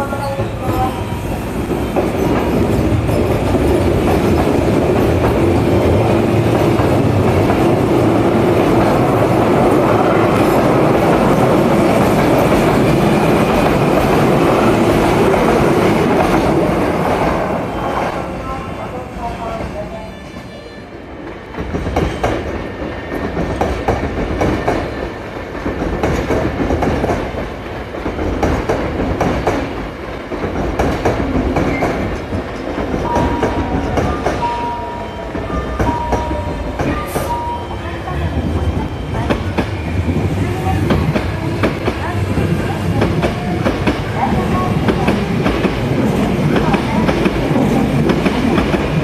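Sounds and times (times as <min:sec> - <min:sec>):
train rumble: 0:00.0 - 0:49.0
train wheels clicking on rail joints: 0:21.3 - 0:37.6, 0:38.4 - 0:49.0.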